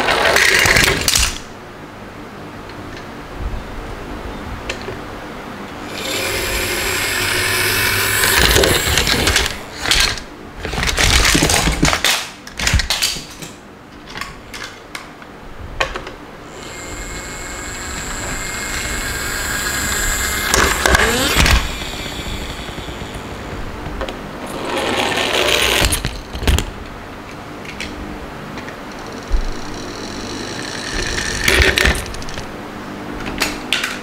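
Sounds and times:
toys clattering falling: 0:00.1 - 0:01.4, 0:08.2 - 0:14.8
toy vehicles rattling on wood: 0:07.7 - 0:12.2, 0:19.0 - 0:23.5.

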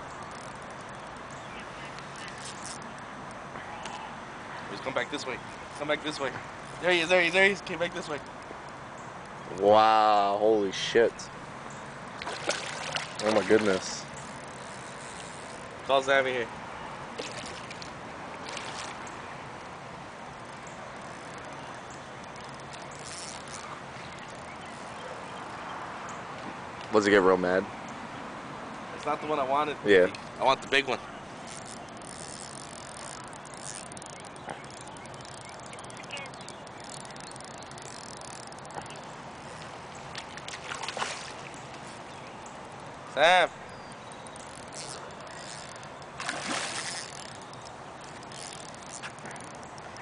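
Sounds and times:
low outdoor hum: 0:00.0 - 0:50.0
fish splashing in water: 0:12.1 - 0:15.8, 0:17.1 - 0:19.2, 0:31.5 - 0:42.3, 0:44.0 - 0:49.9.

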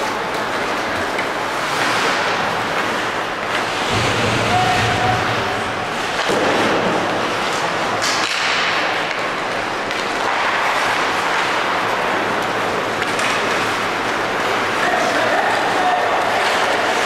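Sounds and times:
ice hockey arena din: 0:00.0 - 0:17.0.

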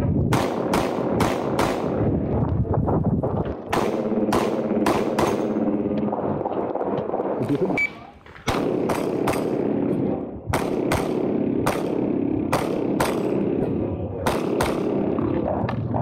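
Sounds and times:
rapid pistol shots: 0:00.3 - 0:02.1, 0:03.6 - 0:06.2, 0:08.4 - 0:15.4.

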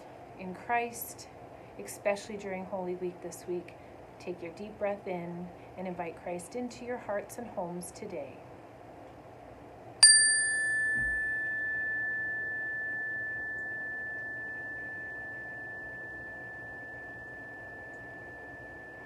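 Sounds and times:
resonator chime ringing: 0:10.0 - 0:19.0.

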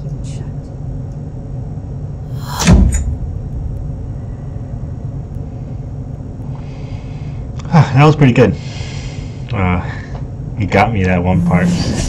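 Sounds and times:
low steady rumble: 0:00.0 - 0:12.0
whoosh into deep boom: 0:02.3 - 0:05.0.

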